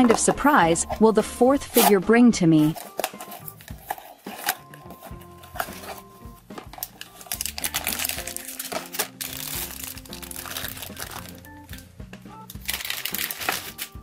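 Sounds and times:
background music: 0.0 - 14.0
foil packaging crinkling: 2.6 - 11.5, 12.5 - 14.0.

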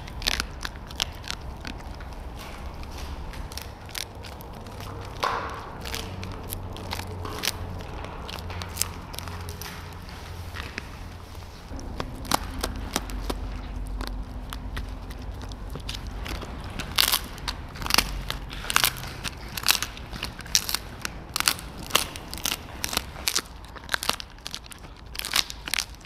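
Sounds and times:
dog crunching a treat: 0.0 - 26.0
low steady hum: 0.0 - 26.0.

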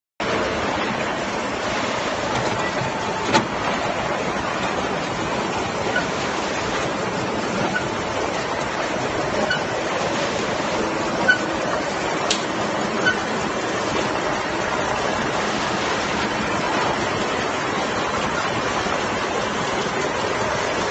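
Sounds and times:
machinery running: 0.2 - 20.9.

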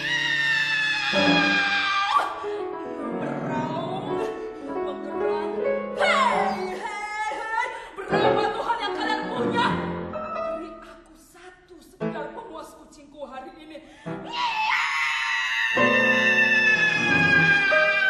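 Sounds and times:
piano: 0.0 - 12.7, 13.9 - 18.0
soprano voice singing: 3.2 - 12.4.

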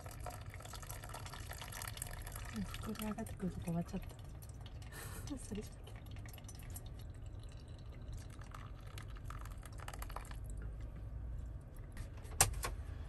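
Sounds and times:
hot water pouring and dripping: 0.0 - 10.6.

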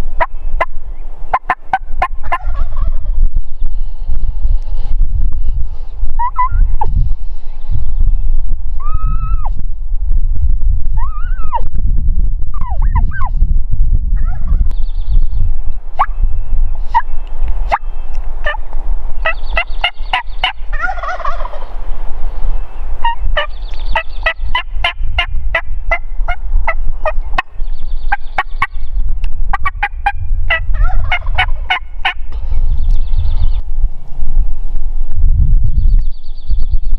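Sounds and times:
wind rumble on microphone: 0.0 - 36.9
wild turkey gobbling: 1.3 - 3.0, 6.2 - 6.6, 19.2 - 21.7, 23.0 - 23.5, 24.2 - 27.5, 29.5 - 32.2.

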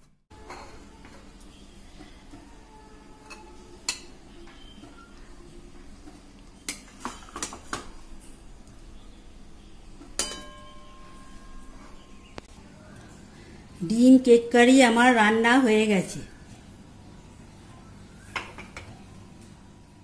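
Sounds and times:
spatula clinking on plate and pan: 10.2 - 11.6.

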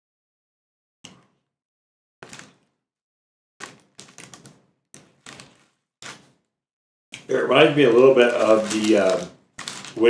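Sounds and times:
paper wrapper crinkling: 3.7 - 4.5, 7.3 - 10.0.

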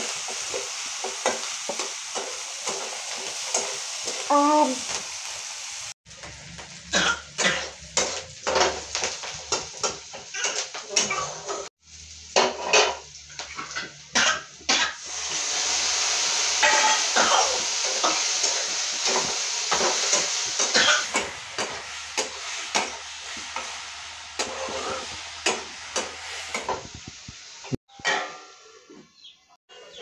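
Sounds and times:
food sizzling in a pan: 0.0 - 30.0
spatula scraping and clinking pan: 16.6 - 17.1, 17.8 - 26.8.

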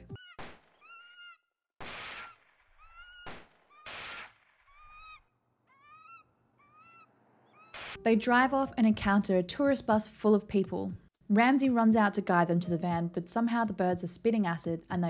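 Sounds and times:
bird screeching: 0.2 - 8.0
gunshots: 1.8 - 4.9.

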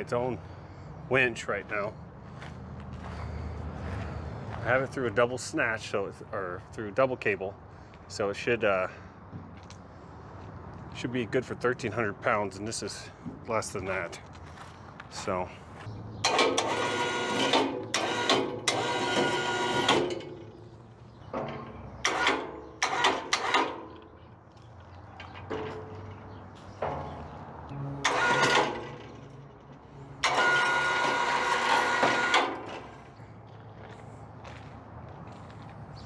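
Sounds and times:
hoist motor whining: 16.2 - 20.6, 21.3 - 23.9, 26.8 - 33.2.

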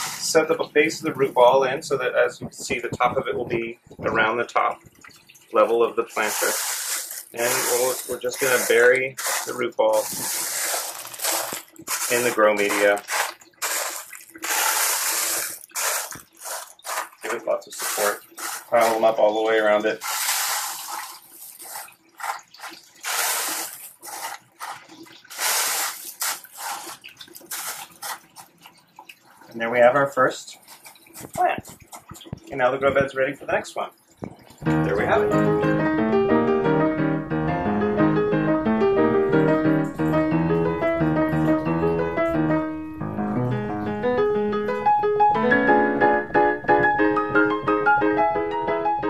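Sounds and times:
wet clay pebbles clattering: 0.0 - 35.4
piano music: 6.1 - 21.0, 34.6 - 49.0.

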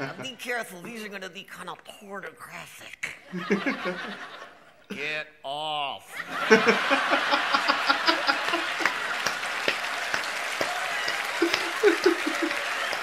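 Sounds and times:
man laughing in bursts: 3.4 - 5.0, 6.2 - 9.2, 11.4 - 12.9
audience applauding and laughing: 6.2 - 13.0.

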